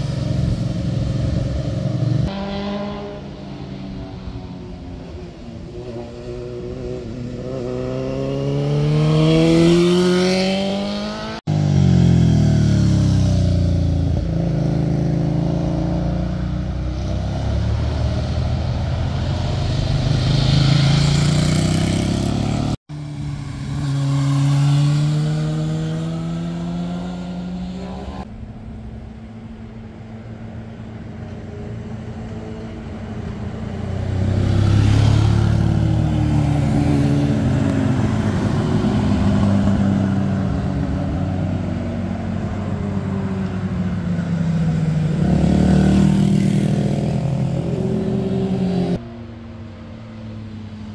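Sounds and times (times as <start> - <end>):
motorcycles accelerating past: 5.5 - 28.3, 31.8 - 49.1.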